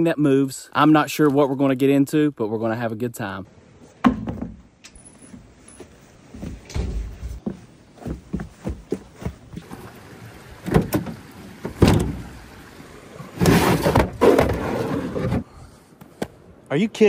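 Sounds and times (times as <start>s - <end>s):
footsteps on wooden steps: 5.3s - 9.8s
objects clattering in truck bed: 10.6s - 12.4s, 13.4s - 15.5s.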